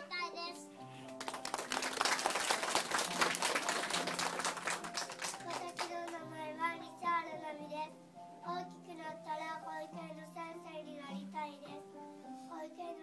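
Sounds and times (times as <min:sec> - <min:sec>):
music accompaniment: 0:00.0 - 0:13.0
group clapping hands: 0:01.1 - 0:06.3
child singing: 0:05.4 - 0:13.0.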